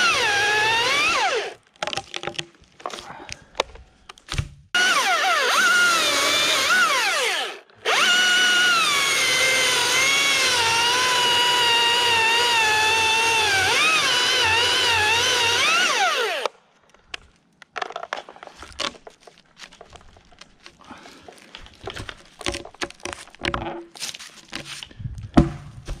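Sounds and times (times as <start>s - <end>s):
battery chainsaw cutting wood: 0.0s - 1.6s, 4.8s - 16.5s
wood cracks and knocks: 1.6s - 4.6s, 16.9s - 26.0s.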